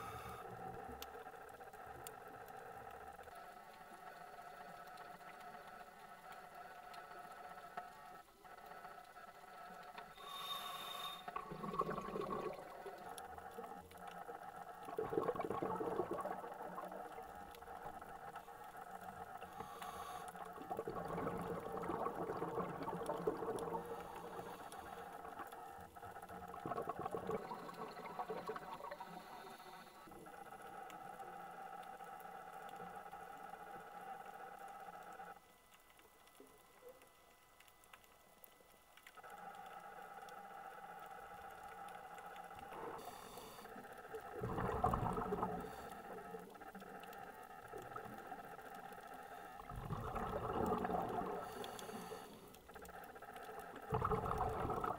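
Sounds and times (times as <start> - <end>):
muffled underwater hum: 0.0 - 54.9
water gushing and bubbling: 11.3 - 18.4, 20.5 - 29.2, 44.0 - 54.9.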